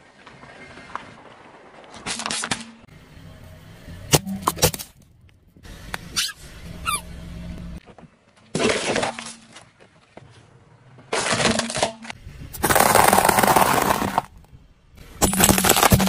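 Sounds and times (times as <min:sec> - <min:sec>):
car rumble: 0:02.8 - 0:07.9
rubber duck squeaking: 0:06.1 - 0:07.1
plastic toys cracking under tyre: 0:11.1 - 0:14.5, 0:15.2 - 0:16.0.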